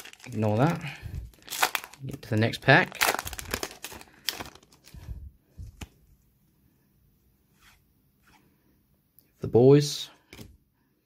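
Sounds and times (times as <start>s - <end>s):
foil wrapper crinkling: 0.0s - 4.9s.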